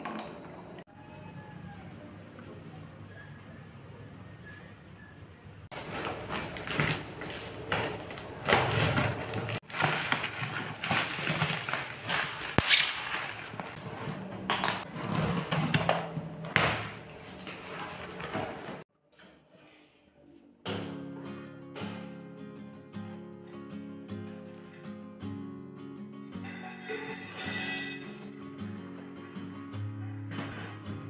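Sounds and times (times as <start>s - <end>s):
bubble wrap and tape crinkling: 5.7s - 15.2s.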